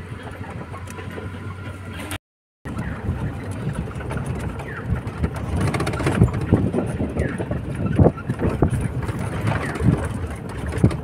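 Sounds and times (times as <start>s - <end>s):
vehicle engine rumbling: 0.0s - 11.0s
vehicle jolting on rough track: 0.0s - 11.0s
wind on microphone: 2.7s - 11.0s.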